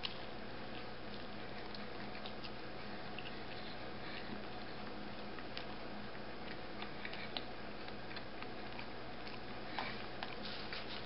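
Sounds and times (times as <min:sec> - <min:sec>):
man chewing: 0:00.0 - 0:11.0
room hiss: 0:08.6 - 0:11.0.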